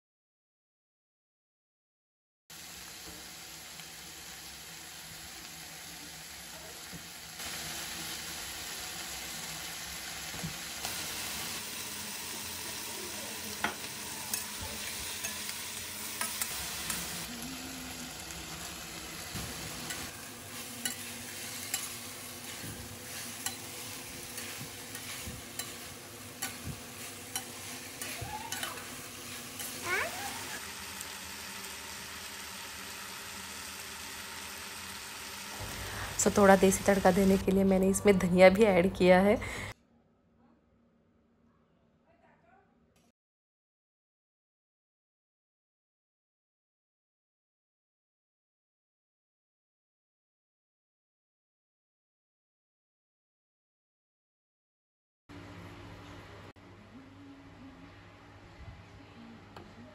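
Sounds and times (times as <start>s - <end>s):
vegetables sizzling in a pan: 2.5s - 39.8s
metal spatula scraping pan: 19.7s - 29.8s.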